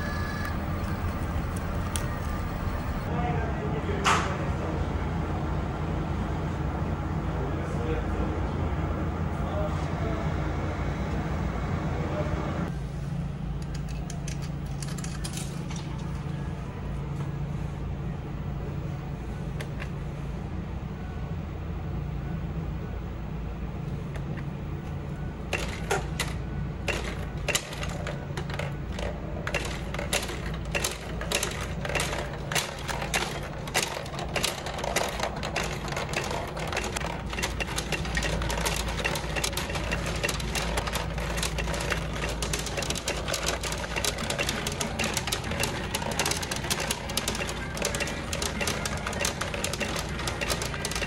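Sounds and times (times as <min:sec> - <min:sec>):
steel balls clattering through pins: 0:00.0 - 0:03.1, 0:25.5 - 0:51.0.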